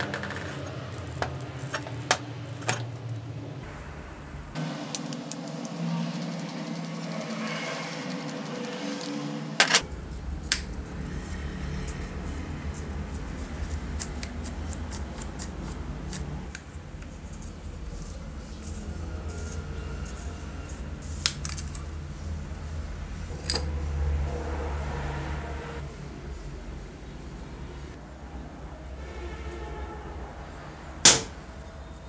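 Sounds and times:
metal parts clicking and clinking: 0:00.0 - 0:03.2, 0:17.9 - 0:22.1, 0:23.3 - 0:23.7
steady low hum: 0:00.0 - 0:28.9
sharp knocks on metal: 0:31.1 - 0:31.3.

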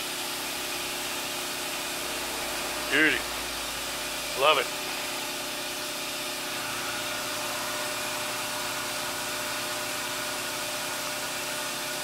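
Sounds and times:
faint fan hum: 0:00.8 - 0:09.3.

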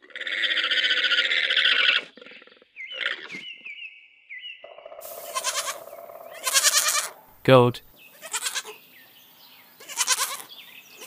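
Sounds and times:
alpaca high chirps: 0:05.0 - 0:07.2
alpaca shrill call: 0:05.0 - 0:07.2.

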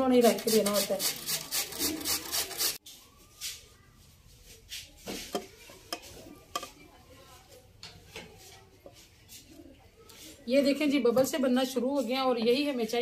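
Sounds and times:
potato grated on metal grater: 0:00.2 - 0:02.8.

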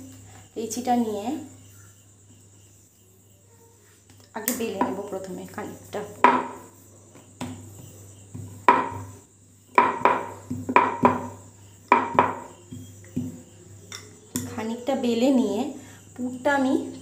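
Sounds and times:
rolling pin knocking on wooden board: 0:06.2 - 0:06.6, 0:08.3 - 0:09.1, 0:09.7 - 0:13.4.

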